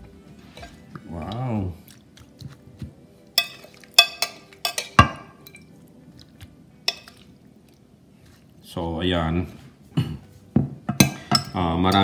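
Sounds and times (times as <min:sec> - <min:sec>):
soft wet fish sounds: 0:00.3 - 0:04.6
spoon clinking glass bowl: 0:03.4 - 0:05.8, 0:06.8 - 0:07.3, 0:10.9 - 0:12.0.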